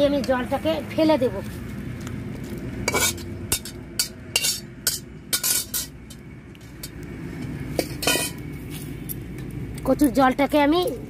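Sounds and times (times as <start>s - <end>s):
metal spoon scraping a pot: 2.8s - 7.0s, 7.8s - 8.4s.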